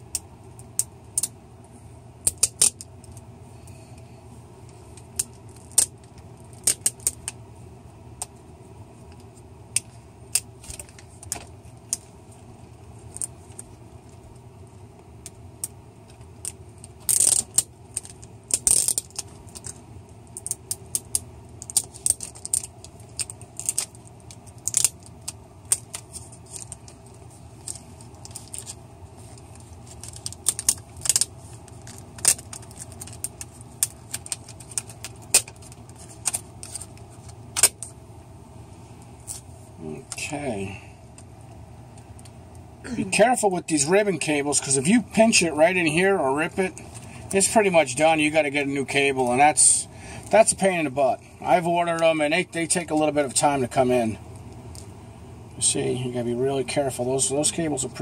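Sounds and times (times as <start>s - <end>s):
small clicks and rattles of connector: 15.2s - 27.0s, 27.6s - 37.9s.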